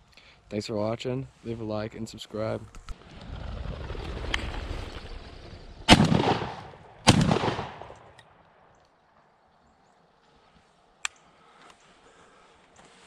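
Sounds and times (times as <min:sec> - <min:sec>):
rolling echo: 0:03.7 - 0:09.2
shotgun shots: 0:05.9 - 0:08.2.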